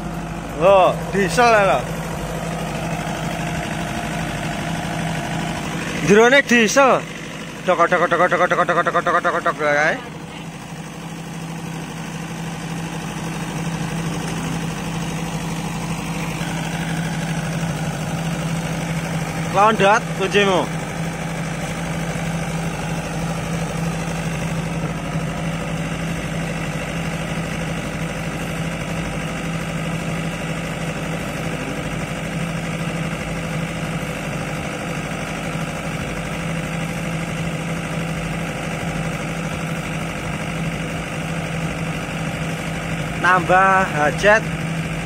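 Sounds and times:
diesel generator running: 0.0s - 45.0s.

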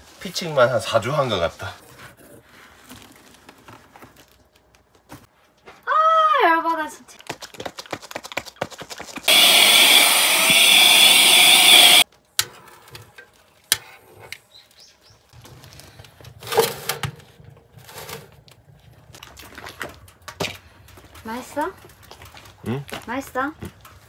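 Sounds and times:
small electric motor whirring: 9.3s - 12.0s.

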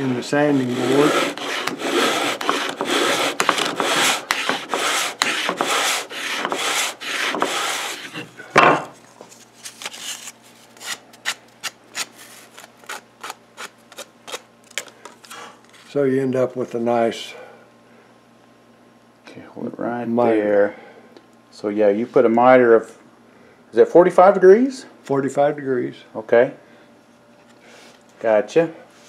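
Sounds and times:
sandpaper scratching on wood: 0.0s - 8.2s.

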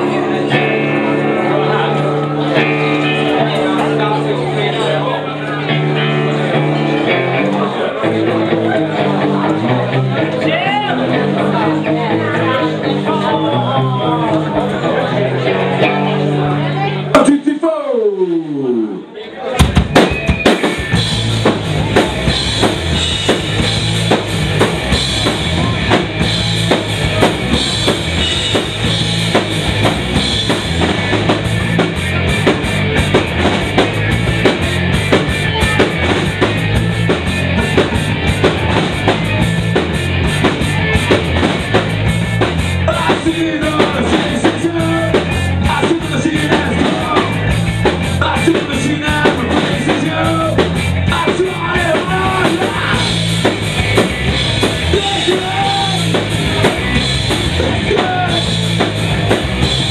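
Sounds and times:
electric guitars: 0.0s - 17.2s, 18.2s - 59.9s
drum kit: 19.6s - 59.9s.

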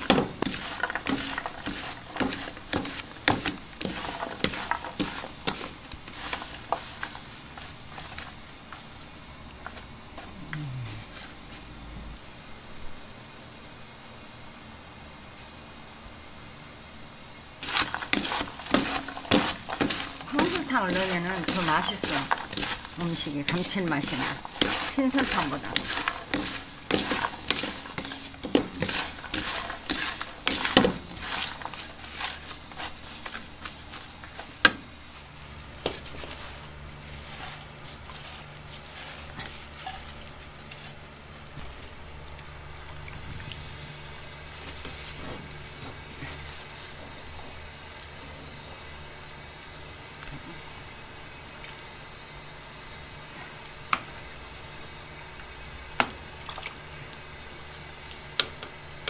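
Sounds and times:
spatula scraping food in pan: 0.0s - 9.0s, 17.6s - 41.0s
stew simmering: 0.0s - 13.0s, 17.6s - 59.0s.

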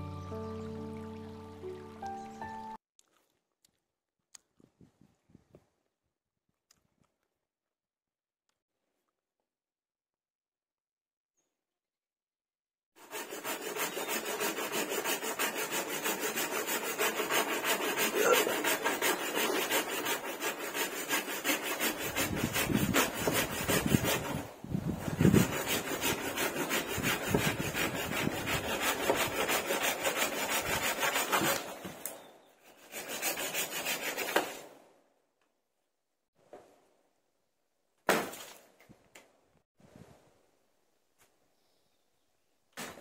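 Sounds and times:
hand saw cutting wood: 13.0s - 34.8s.

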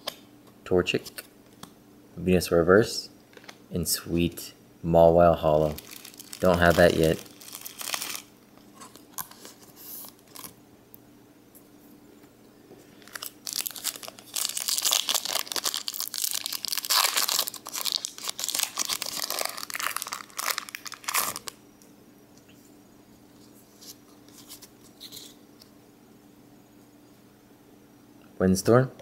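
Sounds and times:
cards rustling: 5.6s - 10.5s, 13.0s - 21.5s
foil wrapper crinkling and tearing: 5.6s - 10.5s, 13.0s - 21.6s.

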